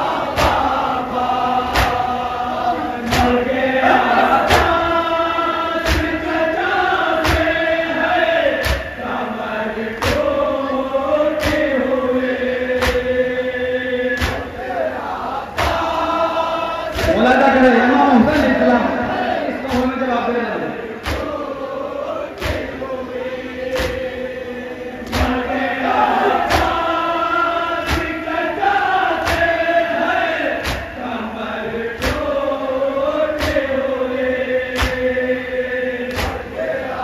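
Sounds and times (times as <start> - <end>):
men chanting a lament: 0.0 - 37.0
unison chest-beating: 3.1 - 5.0.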